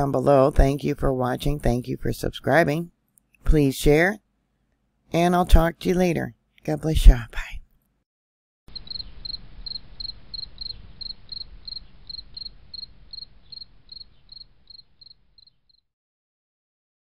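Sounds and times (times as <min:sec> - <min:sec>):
crickets chirping: 0:08.7 - 0:15.8.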